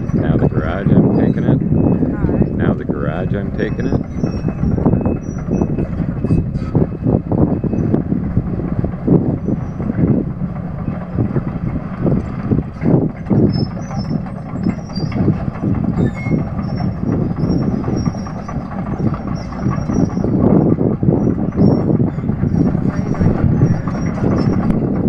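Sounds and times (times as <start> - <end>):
faint metallic squeaks: 0.0 - 8.0, 13.3 - 15.3, 15.9 - 24.7
demolition machinery rumbling: 0.0 - 25.0.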